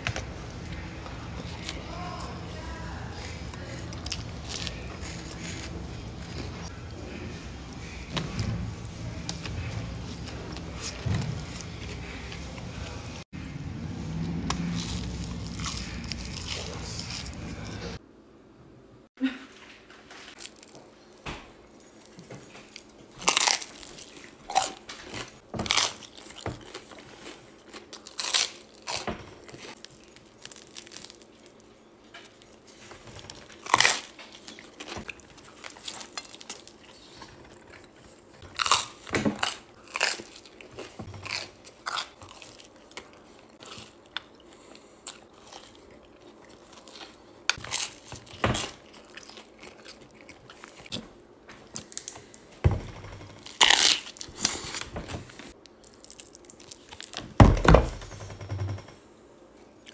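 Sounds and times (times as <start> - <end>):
crunchy food being chewed: 0.0 - 8.0, 14.4 - 18.0, 21.8 - 52.6, 53.2 - 57.3.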